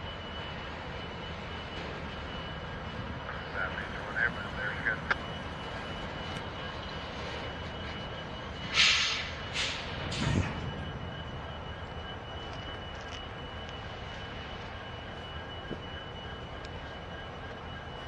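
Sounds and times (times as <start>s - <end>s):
distant diesel locomotives idling: 0.0s - 18.0s
train brakes air hissing: 8.7s - 10.4s.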